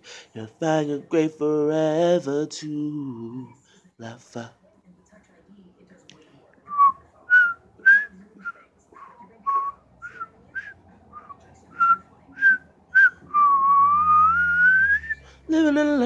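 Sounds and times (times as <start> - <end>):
person whistling a tune: 9.5 - 15.2.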